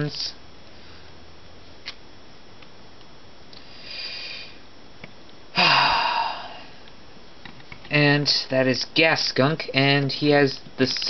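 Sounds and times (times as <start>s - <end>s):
person snorting exhale: 3.6s - 4.6s, 5.6s - 6.8s.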